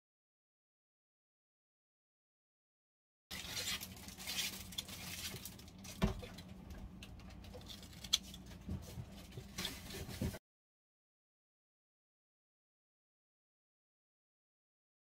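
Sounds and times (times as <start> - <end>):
wet cabbage squelching: 3.3 - 10.0.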